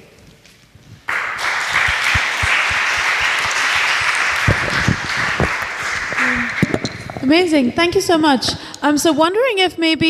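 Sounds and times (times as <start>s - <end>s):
audience applause: 1.1s - 6.9s.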